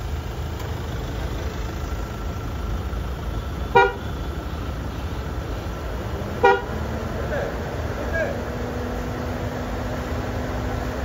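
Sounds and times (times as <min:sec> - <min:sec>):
car horn toot: 0:03.6 - 0:05.2, 0:06.3 - 0:06.8.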